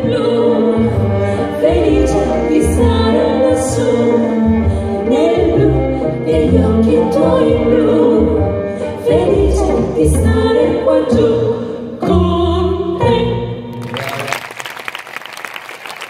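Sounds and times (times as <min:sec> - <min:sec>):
women singing in harmony: 0:00.0 - 0:13.7
strings and double bass: 0:00.0 - 0:14.4
audience applause: 0:13.8 - 0:16.0.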